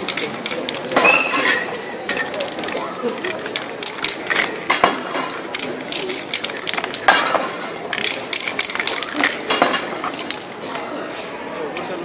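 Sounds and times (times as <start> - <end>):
spray cans clicking and clinking: 0.0 - 10.8
crowd chatter: 0.0 - 12.0.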